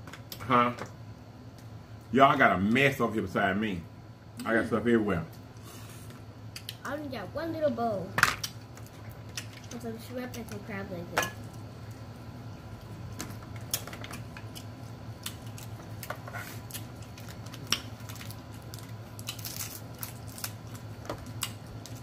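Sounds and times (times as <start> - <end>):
low steady hum: 0.0 - 22.0
crab shells cracking: 13.2 - 22.0.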